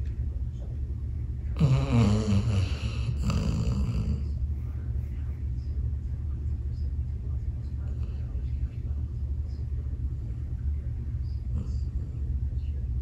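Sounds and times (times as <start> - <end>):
steady low hum: 0.0 - 13.0
dog snoring: 1.6 - 4.4.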